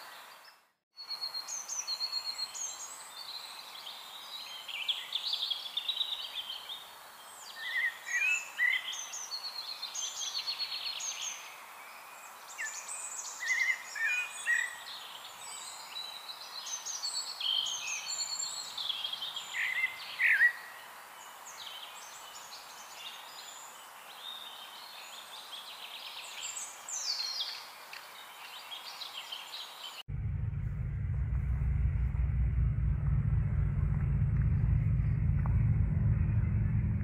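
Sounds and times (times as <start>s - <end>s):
songbirds singing and chirping: 0.0s - 30.1s
low rumble: 30.1s - 37.0s.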